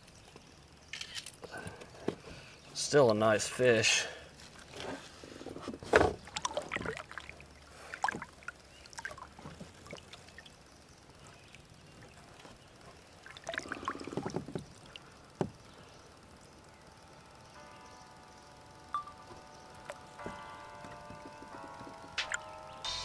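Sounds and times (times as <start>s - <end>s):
water splashing: 6.2s - 10.6s.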